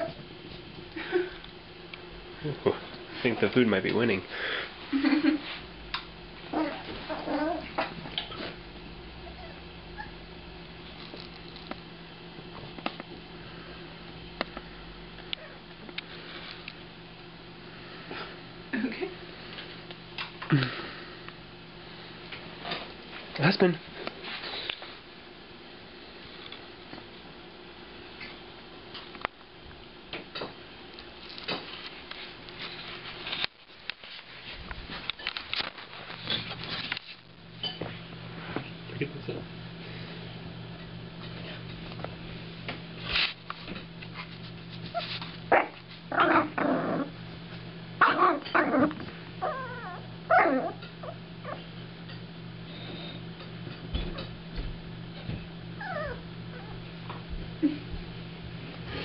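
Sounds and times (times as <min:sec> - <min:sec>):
steady low hum: 0:00.0 - 0:59.0
puppy scampering on carpet: 0:06.5 - 0:08.6, 0:41.2 - 0:46.4.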